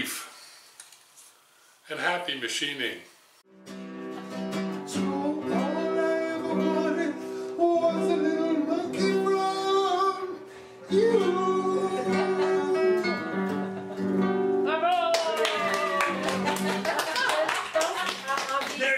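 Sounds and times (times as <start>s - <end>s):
acoustic guitar: 3.5s - 17.2s
person singing: 4.9s - 14.0s.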